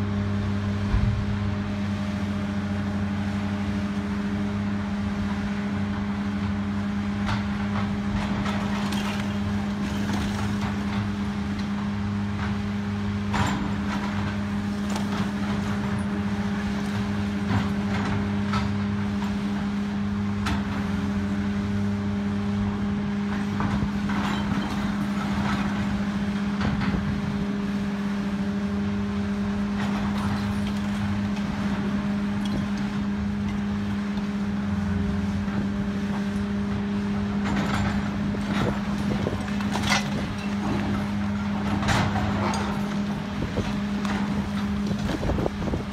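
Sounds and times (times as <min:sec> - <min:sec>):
excavator diesel engine droning: 0:00.0 - 0:45.9
falling rubble crashing: 0:08.3 - 0:11.2, 0:37.5 - 0:45.9.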